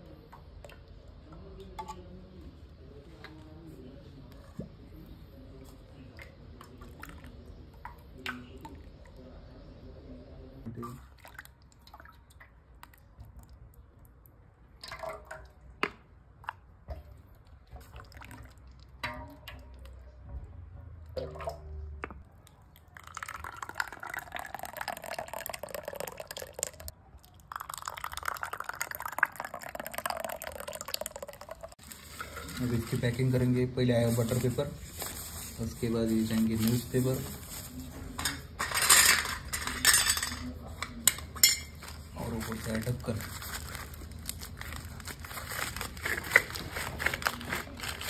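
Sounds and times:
thick liquid pouring into tins: 22.3s - 33.4s
metal tins clinking: 38.2s - 41.9s.

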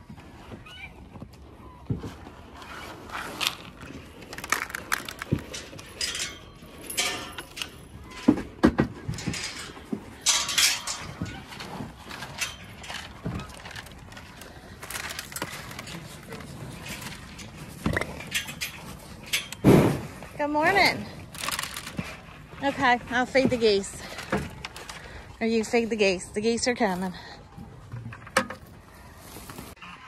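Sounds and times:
cattle crunching grain: 2.0s - 26.7s.

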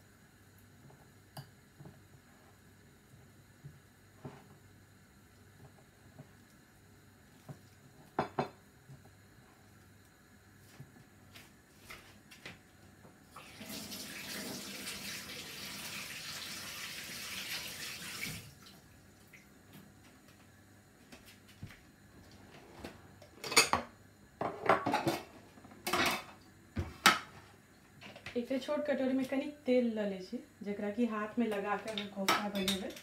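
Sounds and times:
kitchen tap running: 13.3s - 19.4s.

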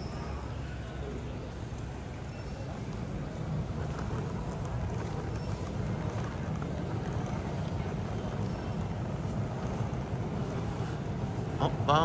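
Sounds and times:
low rumble of terminal noise: 0.0s - 12.0s.

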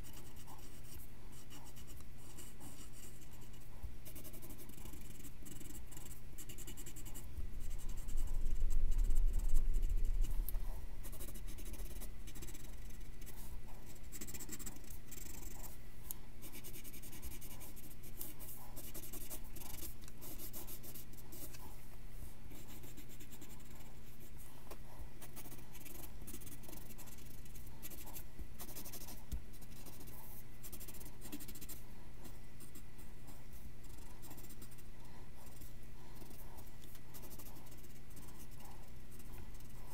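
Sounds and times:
pencil scratching on paper: 0.0s - 15.8s, 16.4s - 21.8s, 22.5s - 39.9s
faint hum: 0.0s - 39.9s.

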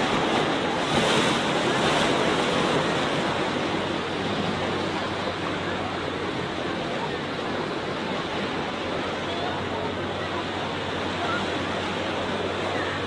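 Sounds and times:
waves washing on sandy beach: 0.0s - 13.0s.

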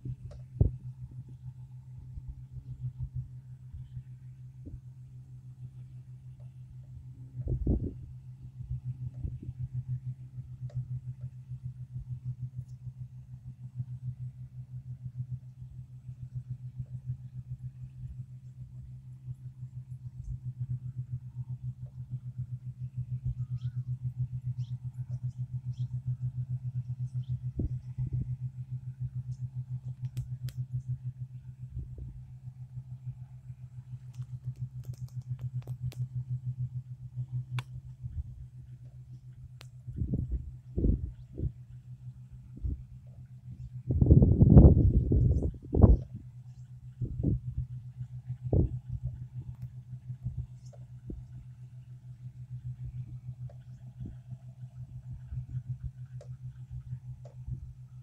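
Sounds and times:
distant diesel engines humming: 0.0s - 58.0s
sharp clicks: 29.8s - 30.8s, 34.0s - 36.1s, 37.5s - 37.8s.

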